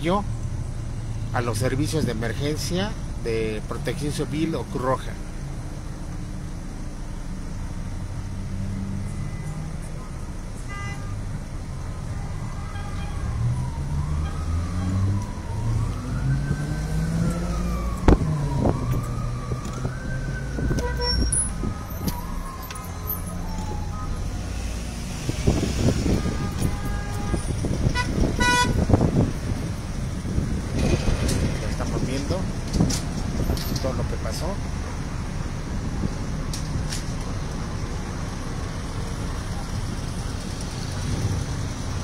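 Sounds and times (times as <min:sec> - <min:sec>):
road traffic engines: 0:00.0 - 0:42.0
emergency siren wailing: 0:12.0 - 0:29.6.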